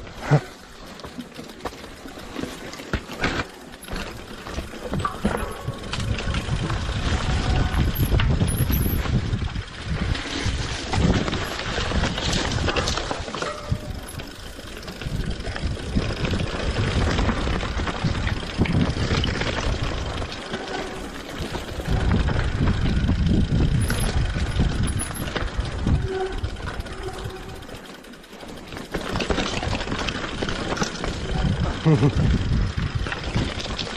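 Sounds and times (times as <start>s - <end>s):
bike rattling over bumps: 0.0s - 33.9s
wind buffeting microphone: 4.8s - 20.4s, 21.4s - 27.7s, 31.0s - 33.8s.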